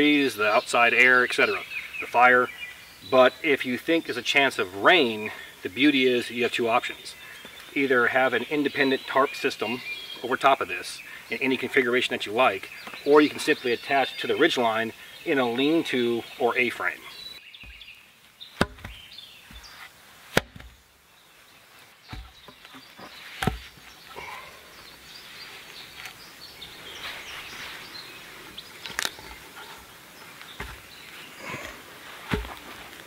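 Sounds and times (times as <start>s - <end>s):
wooden logs knocking on ground: 18.6s - 19.7s, 22.1s - 23.8s, 30.6s - 30.9s, 32.3s - 32.6s.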